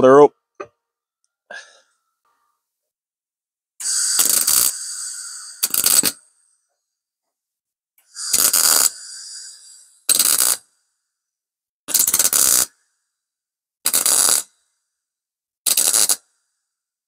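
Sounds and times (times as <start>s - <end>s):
welding arc crackling: 3.8s - 6.2s, 8.2s - 10.6s, 15.7s - 16.2s
gas hiss: 3.8s - 6.3s, 8.1s - 10.6s.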